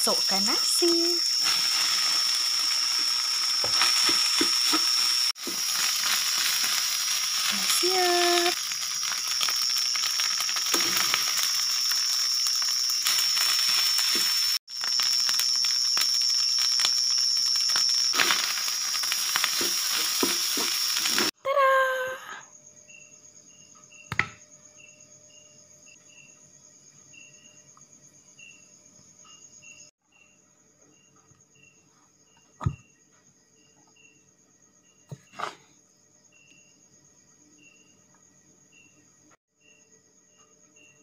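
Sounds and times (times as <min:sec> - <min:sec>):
rice sizzling in a pan: 0:00.0 - 0:21.4
crickets chirping: 0:00.0 - 0:41.0.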